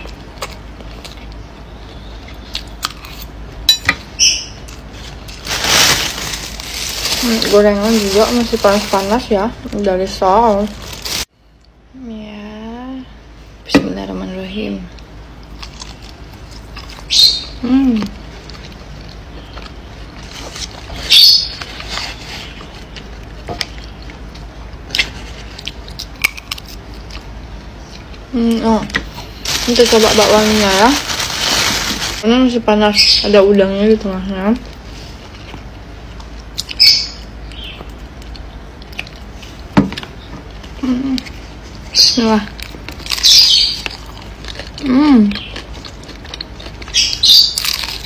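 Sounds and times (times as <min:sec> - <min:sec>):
person chewing crunchy snacks: 0:15.4 - 0:17.1, 0:18.3 - 0:28.3, 0:42.6 - 0:48.0.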